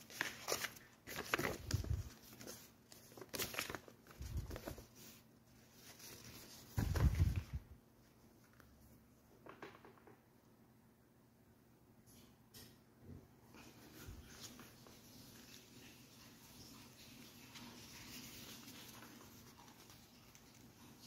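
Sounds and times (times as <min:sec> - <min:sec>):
paper rustling and crinkling: 0:00.0 - 0:07.7, 0:13.6 - 0:21.0.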